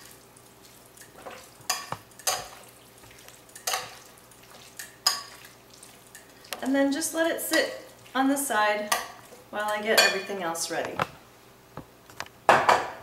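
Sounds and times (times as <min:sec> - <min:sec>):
metal tongs clinking on glass: 0:01.0 - 0:02.6, 0:03.6 - 0:04.1.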